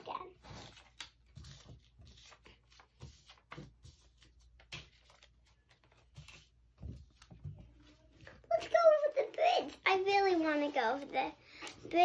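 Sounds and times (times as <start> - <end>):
paper puppets tapping and rustling: 0.0 - 12.0.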